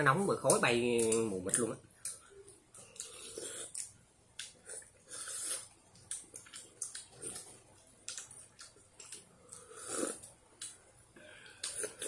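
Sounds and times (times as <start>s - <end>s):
people slurping soup: 9.6s - 10.2s.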